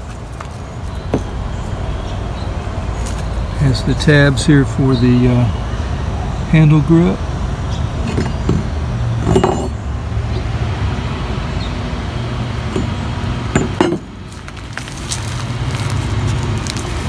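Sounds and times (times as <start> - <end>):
metal lever knocking and clinking: 8.1 - 9.8.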